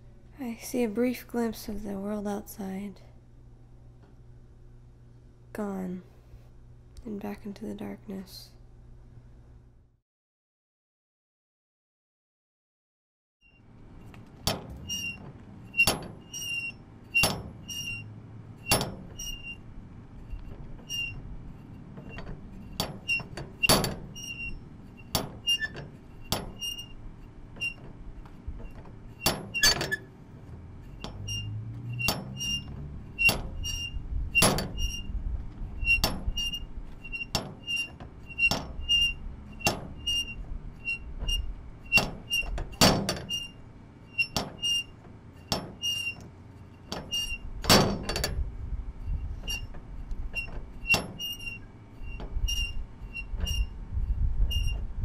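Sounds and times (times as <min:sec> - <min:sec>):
low rumble: 0:30.2 - 0:37.1.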